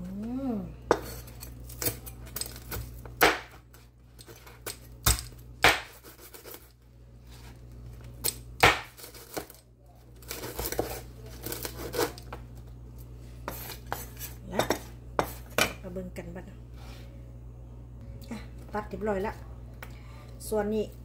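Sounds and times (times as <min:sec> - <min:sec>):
cleaver chopping on wooden board: 0:05.1 - 0:06.0, 0:08.6 - 0:09.0.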